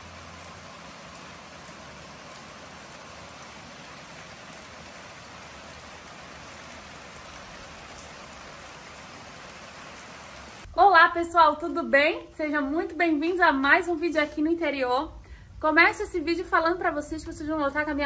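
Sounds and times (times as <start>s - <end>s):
faint raindrop ticks: 0.0s - 10.7s
steady rain falling: 0.0s - 14.8s.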